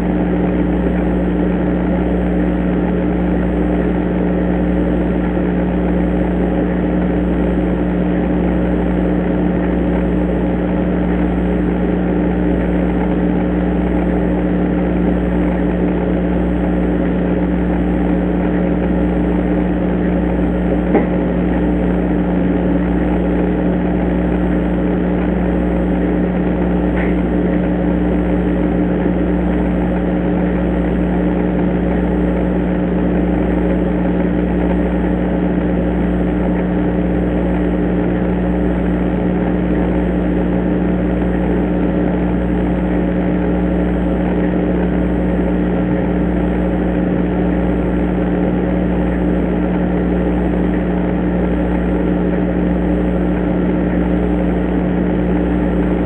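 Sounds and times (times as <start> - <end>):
sharp tap: 20.9 - 21.2.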